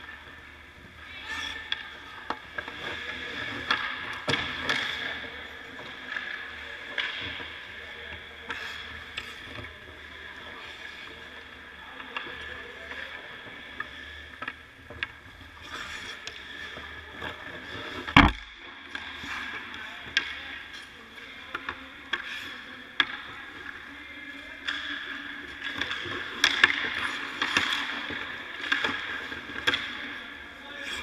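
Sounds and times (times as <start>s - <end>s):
sticks and pucks clacking: 0.0s - 31.0s
skates scraping on ice: 15.4s - 18.1s, 18.9s - 31.0s.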